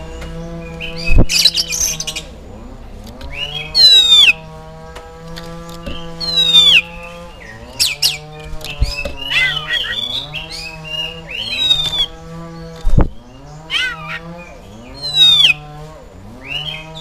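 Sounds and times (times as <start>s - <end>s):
bird whistled calls and chirps: 0.4s - 2.3s, 3.2s - 4.5s, 5.8s - 15.7s, 16.4s - 17.0s.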